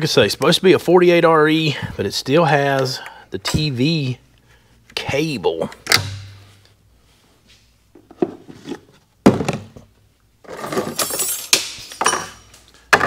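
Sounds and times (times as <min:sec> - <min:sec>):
tools clattering and clinking: 0:10.4 - 0:13.0.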